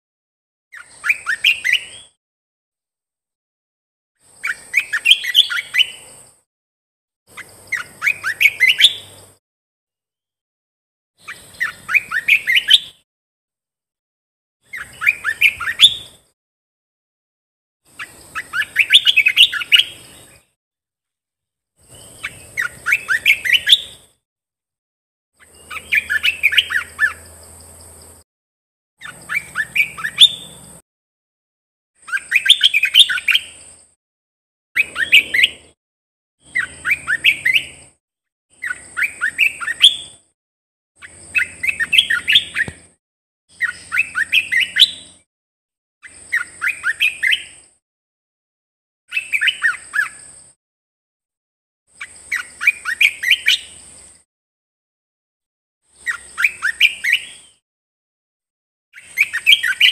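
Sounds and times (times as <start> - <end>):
bulbul singing: 0.7 - 2.2, 4.2 - 6.3, 7.3 - 9.4, 11.2 - 13.0, 14.6 - 16.3, 17.9 - 20.4, 21.8 - 24.1, 25.4 - 27.4, 29.0 - 30.8, 32.0 - 33.8, 34.8 - 35.7, 36.4 - 37.9, 38.5 - 40.2, 41.0 - 42.9, 43.5 - 45.2, 46.0 - 47.7, 59.0 - 59.9.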